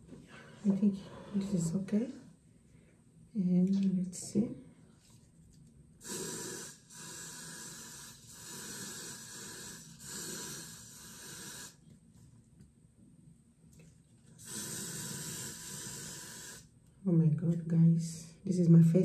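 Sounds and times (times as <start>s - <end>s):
aerosol spray can hissing: 6.0s - 11.8s, 14.4s - 16.7s.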